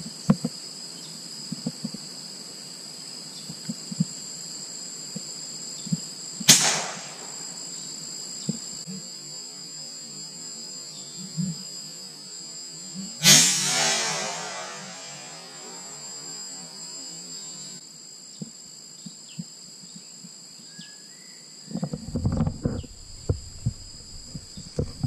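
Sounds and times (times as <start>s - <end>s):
high-pitched insect drone: 0.0s - 25.0s
gunshots: 6.5s - 7.6s, 13.2s - 16.2s, 22.6s - 25.0s.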